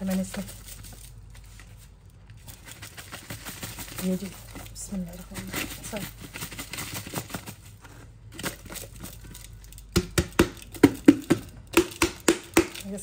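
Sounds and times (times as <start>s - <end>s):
wooden spoon scraping sugar: 0.0s - 9.5s
plastic tub tapping on pot: 9.9s - 12.8s.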